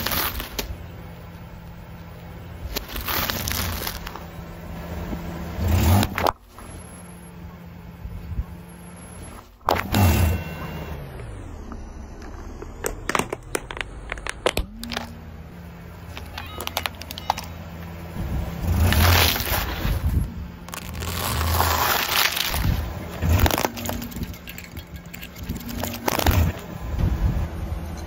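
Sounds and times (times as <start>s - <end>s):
tyre crushing balloons and objects: 0.0s - 0.8s, 2.6s - 4.3s, 9.4s - 10.9s, 18.2s - 27.2s
loud crunching: 0.0s - 6.9s, 9.2s - 27.1s
car engine humming: 0.0s - 28.0s
sharp cracks: 12.2s - 15.2s, 20.6s - 26.7s.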